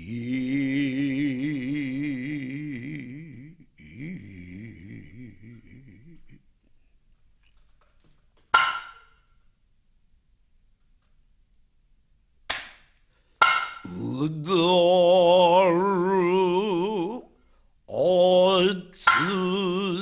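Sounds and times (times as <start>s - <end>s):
voice chanting held notes: 0.0s - 6.5s, 13.8s - 20.0s.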